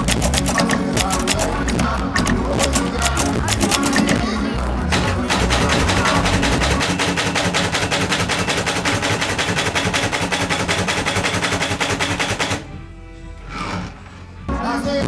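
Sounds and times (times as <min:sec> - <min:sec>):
manual typewriter typing: 0:00.0 - 0:01.6, 0:02.2 - 0:04.2, 0:05.0 - 0:12.6.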